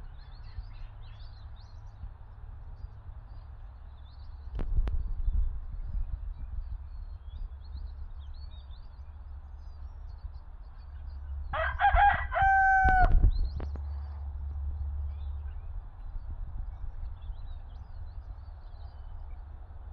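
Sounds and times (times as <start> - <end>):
rooster crowing: 11.5 - 13.3.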